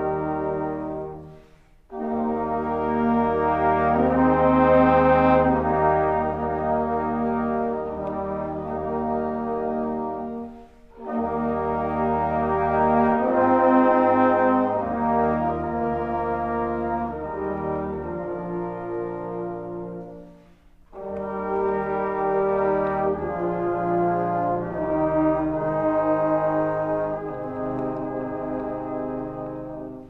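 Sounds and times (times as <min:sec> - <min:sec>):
brass band playing hymn: 0:00.0 - 0:30.0.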